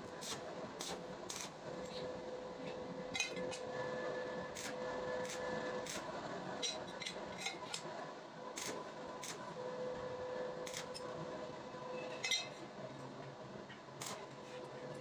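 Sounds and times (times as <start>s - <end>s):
welding arc crackling hiss: 0.1s - 1.6s, 4.6s - 6.1s, 8.6s - 9.4s.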